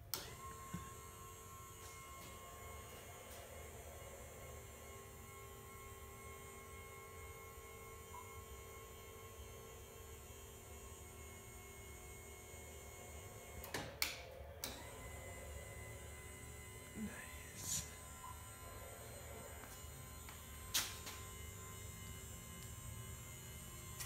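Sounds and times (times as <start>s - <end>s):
linear actuator humming: 14.6s - 24.0s.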